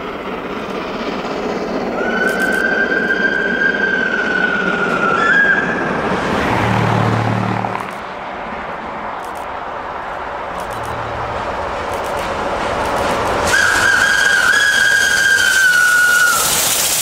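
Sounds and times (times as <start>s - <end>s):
locomotive rushing: 0.0s - 17.0s
steam locomotive whistle: 1.9s - 6.2s, 13.4s - 17.0s.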